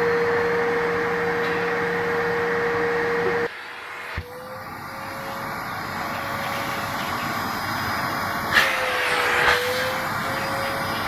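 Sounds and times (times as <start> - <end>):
vacuum cleaner motor whining: 0.0 - 11.0
rush of air through hose: 3.5 - 11.0.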